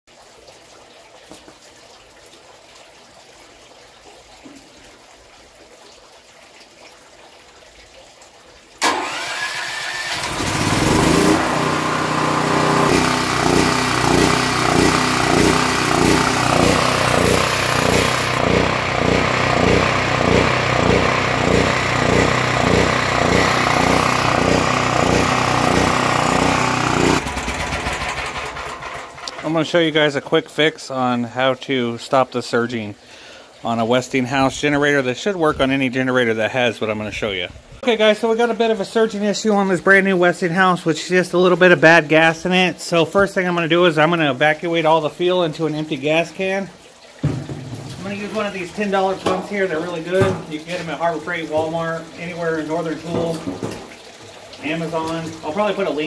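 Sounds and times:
generator engine surging: 8.8 - 29.5.

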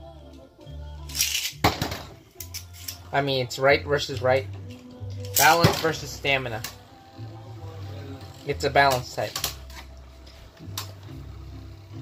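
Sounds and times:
background music: 0.0 - 12.0
spinning top clacking on plastic: 1.1 - 1.6.

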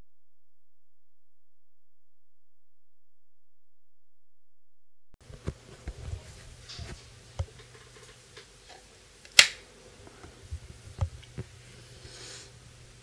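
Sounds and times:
switch clicking on: 9.3 - 9.6.

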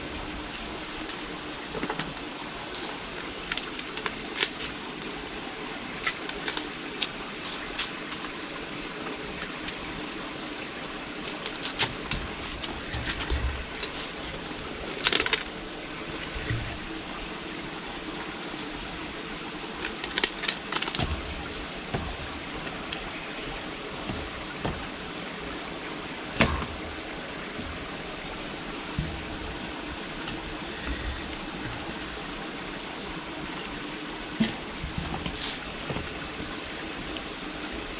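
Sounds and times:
steady background hiss: 0.0 - 37.9
plastic pipe knocks and scrapes: 24.0 - 24.9.

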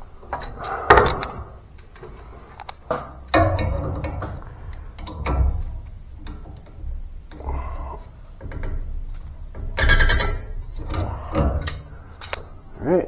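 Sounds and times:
metallic clicks and rattles: 0.2 - 12.6.

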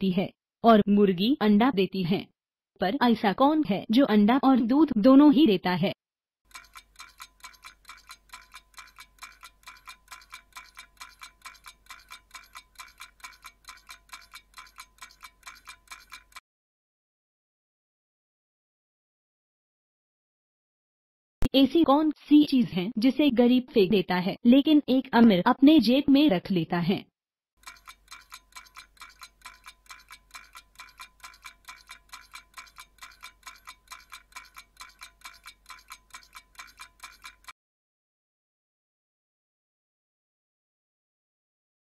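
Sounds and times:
timer ticking: 6.5 - 16.4, 27.6 - 37.5.

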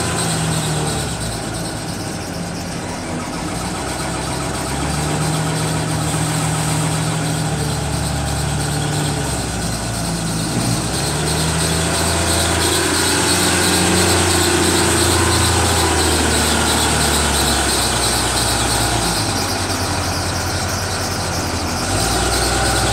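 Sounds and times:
loader diesel engine under load: 0.0 - 22.9.

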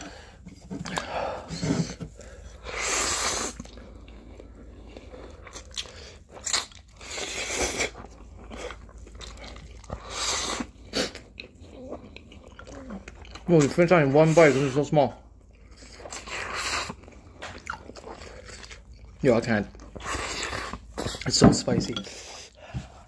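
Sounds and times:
people slurping noodles: 0.0 - 18.9, 19.8 - 21.4
chewing: 2.1 - 13.8, 14.6 - 21.3.

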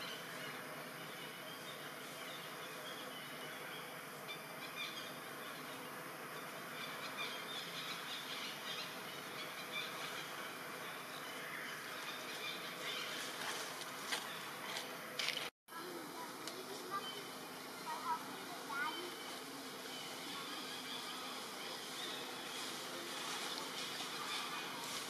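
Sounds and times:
outdoor ambience hiss: 0.0 - 25.0.

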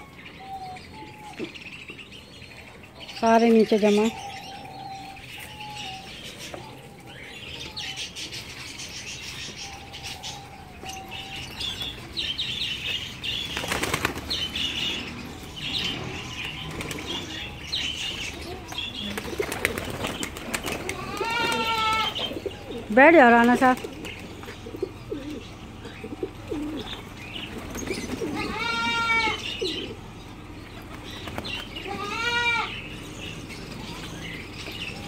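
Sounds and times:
pigeon wings flapping: 13.4 - 14.4, 19.1 - 22.0.

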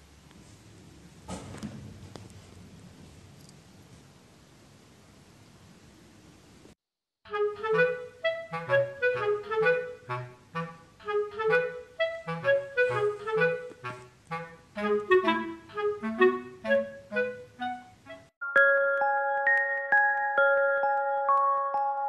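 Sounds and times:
bouncy woodwind melody: 7.3 - 18.3.

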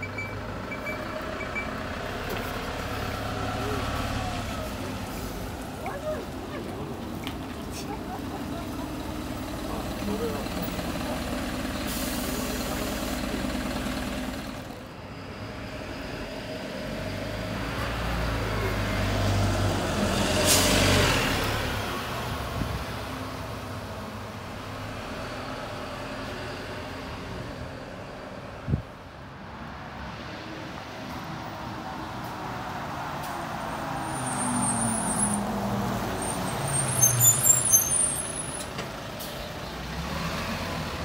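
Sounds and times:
bus diesel engine idling: 0.0 - 17.2, 36.9 - 41.0
bus engine rumble arriving: 0.0 - 41.0.

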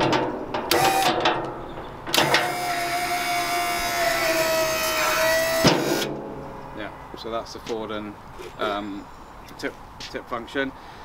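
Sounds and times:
hydraulic pump whining: 0.0 - 6.2.

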